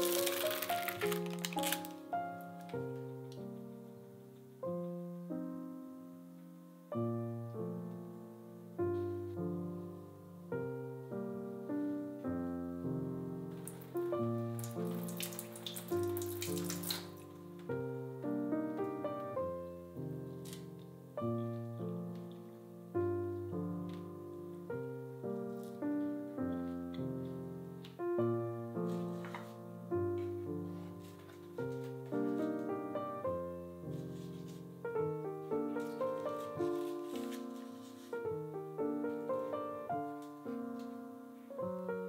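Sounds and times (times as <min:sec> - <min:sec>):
gentle piano music: 0:00.0 - 0:42.0
water running from tap: 0:14.6 - 0:17.2.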